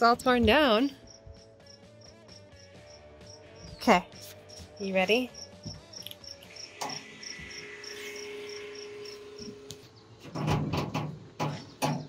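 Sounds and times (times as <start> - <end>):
cricket chirping: 1.0 - 9.7
faint steady hum: 6.4 - 10.0.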